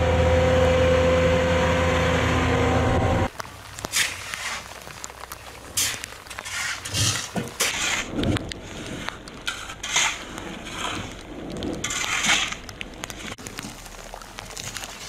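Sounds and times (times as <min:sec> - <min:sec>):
shovels scraping concrete: 0:03.8 - 0:13.8.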